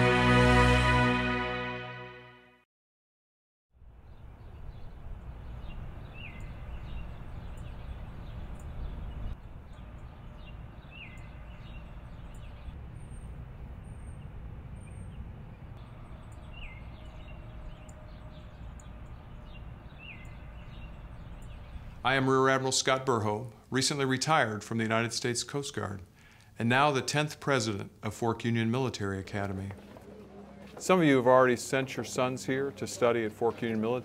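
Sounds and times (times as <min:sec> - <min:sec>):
low steady rumble: 0:03.9 - 0:22.6
birds chirping: 0:04.0 - 0:34.0.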